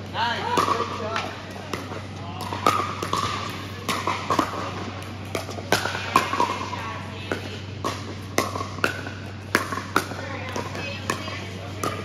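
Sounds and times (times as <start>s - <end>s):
ball bouncing on court: 0.3s - 12.0s
paddles striking plastic ball: 0.5s - 6.7s.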